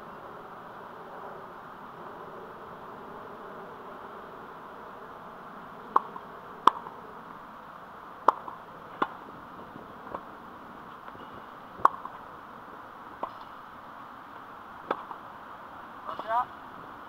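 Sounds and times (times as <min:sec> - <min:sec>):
outdoor hiss: 0:00.0 - 0:17.0
tennis ball pops: 0:05.9 - 0:06.9, 0:08.2 - 0:09.2, 0:11.8 - 0:12.2, 0:14.8 - 0:15.2.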